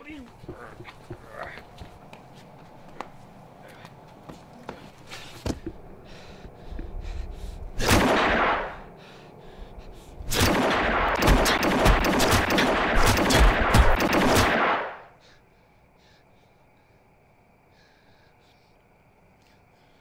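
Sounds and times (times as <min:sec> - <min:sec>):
punches landing: 0:10.3 - 0:15.0.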